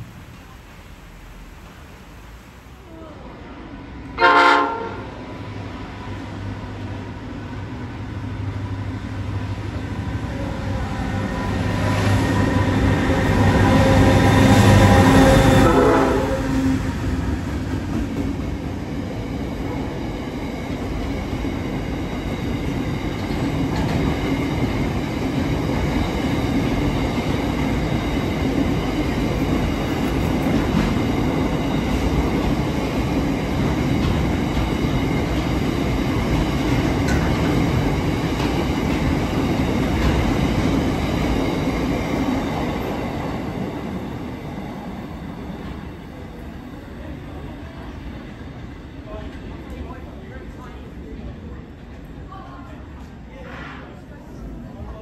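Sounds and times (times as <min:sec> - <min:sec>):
train wheels rumbling and clattering: 0:03.9 - 0:53.8.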